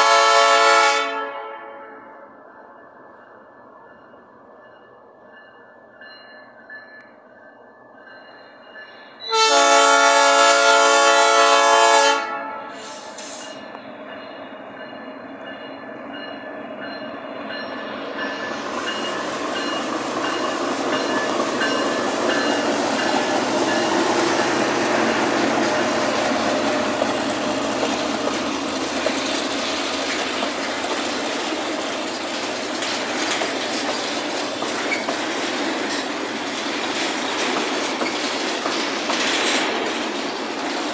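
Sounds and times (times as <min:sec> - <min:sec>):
train horn blast: 0:00.0 - 0:02.3, 0:09.2 - 0:13.1
locomotive engine: 0:06.9 - 0:40.9
wheels clattering over rails: 0:18.9 - 0:40.9.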